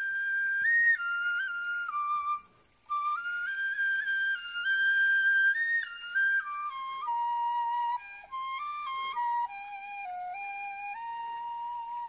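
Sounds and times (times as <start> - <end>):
bamboo flute melody: 0.0 - 12.0.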